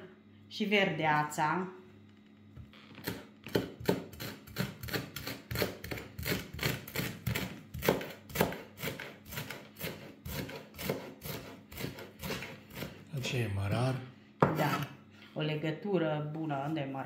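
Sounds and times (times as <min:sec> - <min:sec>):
knife chopping on wooden board: 0:03.0 - 0:13.0, 0:14.4 - 0:14.9.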